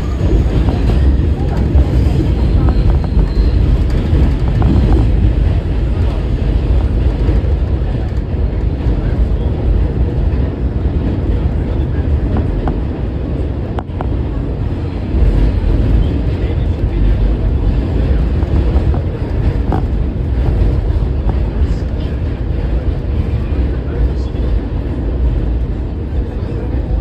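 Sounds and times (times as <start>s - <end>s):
high wheel squeaks: 0.0s - 5.0s
subway train rumbling: 0.0s - 27.0s.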